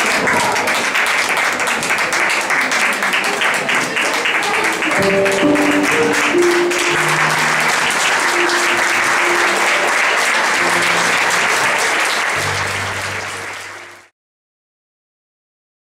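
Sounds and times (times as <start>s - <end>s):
audience applauding: 0.0s - 14.1s
music with held low notes: 5.0s - 13.8s.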